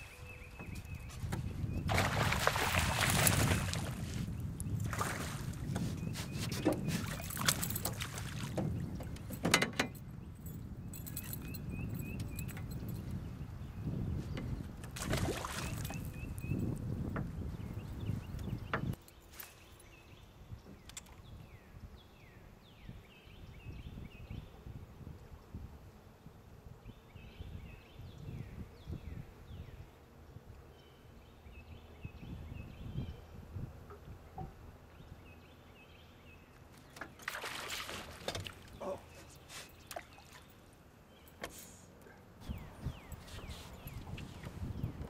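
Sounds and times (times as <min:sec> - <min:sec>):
birds chirping: 0:00.0 - 0:14.8, 0:15.4 - 0:24.6, 0:26.8 - 0:45.0
fish splashing water: 0:01.9 - 0:04.0, 0:15.0 - 0:16.0, 0:37.2 - 0:38.7.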